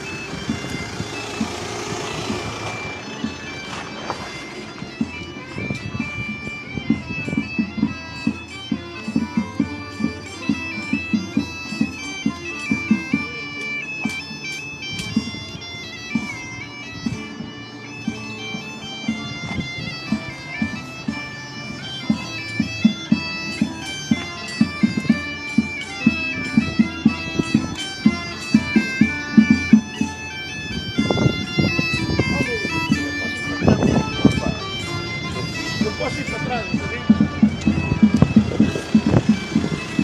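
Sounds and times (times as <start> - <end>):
bagpipe melody over drone: 0.0 - 40.0
low thumps beating time: 26.6 - 40.0.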